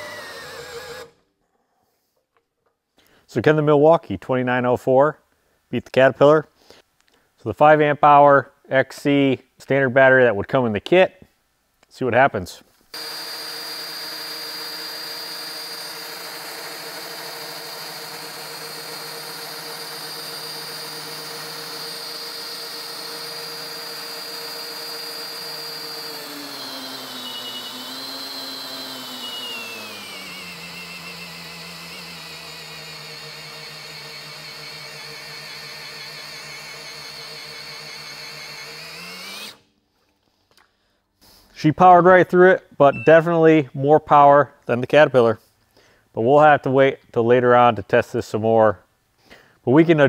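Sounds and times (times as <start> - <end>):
drill whining under load: 0.0 - 1.2, 12.9 - 39.7.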